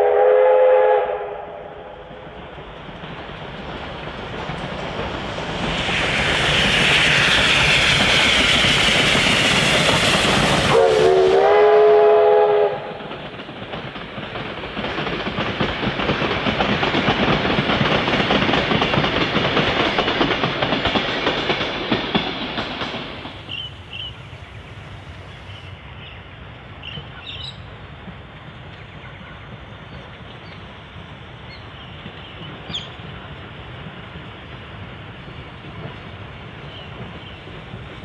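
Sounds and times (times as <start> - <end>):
steam whistle chord: 0.0 - 1.9, 10.6 - 13.0
steam locomotive running: 0.0 - 38.0
train wheels clattering: 2.2 - 25.7, 26.8 - 38.0.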